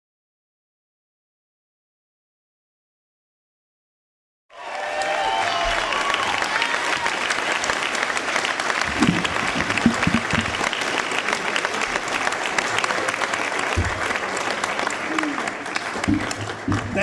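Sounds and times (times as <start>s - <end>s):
audience applauding: 4.5s - 17.0s
audience cheering: 4.5s - 17.0s.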